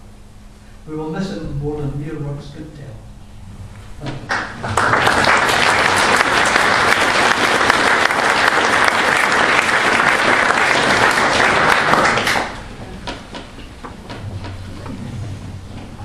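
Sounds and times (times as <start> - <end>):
audience applauding: 4.3 - 13.2.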